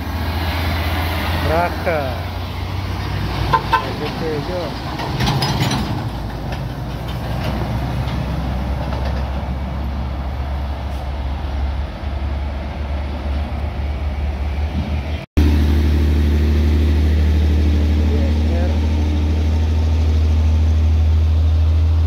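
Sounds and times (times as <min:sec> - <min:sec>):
heavy vehicle engine drone: 0:00.0 - 0:22.0
highway traffic passing: 0:00.0 - 0:22.0.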